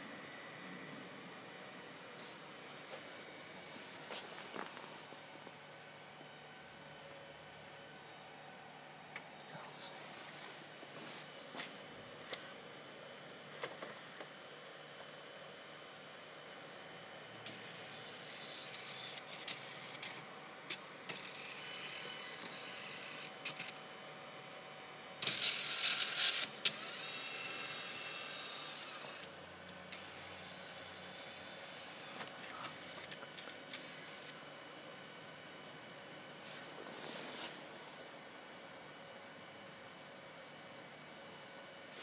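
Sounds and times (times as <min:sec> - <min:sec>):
small motors whirring: 0:17.4 - 0:23.8, 0:25.2 - 0:29.3, 0:29.9 - 0:34.4.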